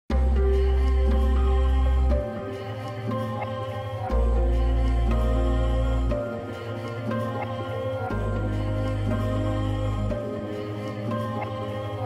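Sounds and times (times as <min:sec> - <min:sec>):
ambient music with bass drone: 0:00.1 - 0:12.0.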